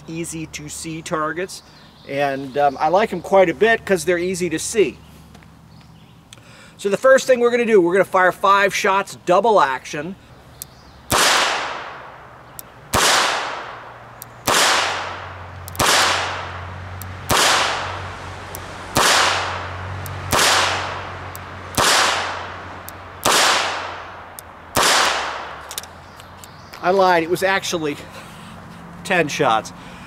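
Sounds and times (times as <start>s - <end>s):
revolver shots: 11.1s - 12.2s, 12.9s - 16.6s, 17.2s - 22.6s.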